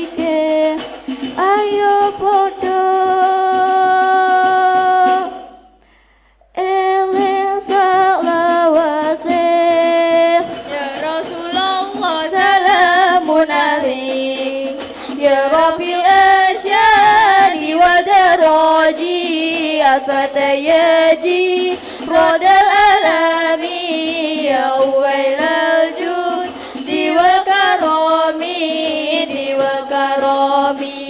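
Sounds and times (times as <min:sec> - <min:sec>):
frame drum beats: 0:00.0 - 0:05.8, 0:07.1 - 0:31.0
children singing: 0:06.9 - 0:31.0.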